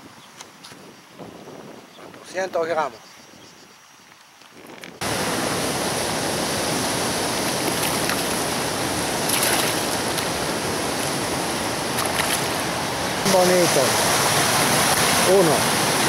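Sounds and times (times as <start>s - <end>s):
flowing river water: 5.0s - 16.0s
fish splashing into water: 7.4s - 10.4s, 11.9s - 12.6s.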